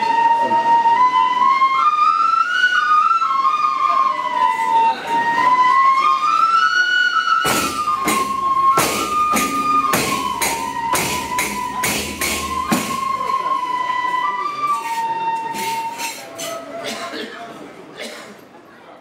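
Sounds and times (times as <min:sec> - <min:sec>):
frame drums struck by hand: 0:07.4 - 0:13.4
wavering melody line: 0:07.4 - 0:16.8.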